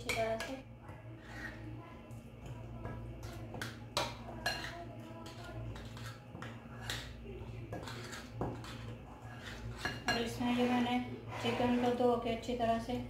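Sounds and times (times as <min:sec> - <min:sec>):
steady low hum: 0:00.0 - 0:13.0
spoon clinking against bowl: 0:03.6 - 0:07.1.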